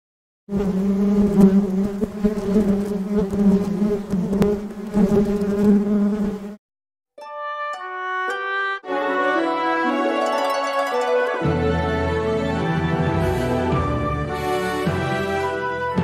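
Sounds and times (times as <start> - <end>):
flying insect buzzing: 0.5 - 6.6
plucked string music: 7.2 - 14.0.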